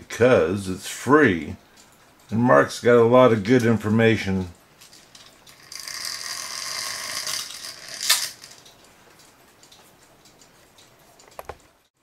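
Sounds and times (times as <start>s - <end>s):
clock chain rattling: 4.8s - 8.7s.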